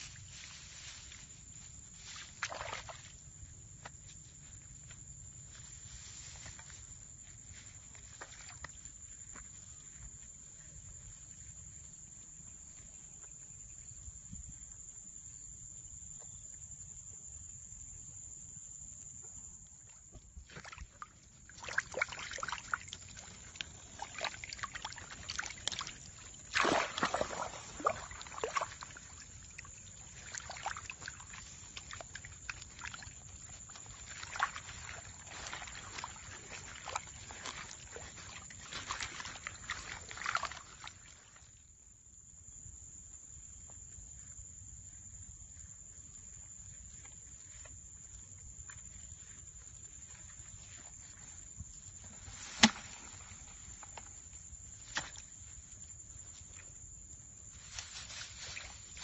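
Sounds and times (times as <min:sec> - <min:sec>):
splashing in muddy water: 0:00.0 - 0:03.5, 0:05.7 - 0:09.3, 0:19.8 - 0:41.6, 0:47.4 - 0:56.8, 0:57.4 - 0:59.0.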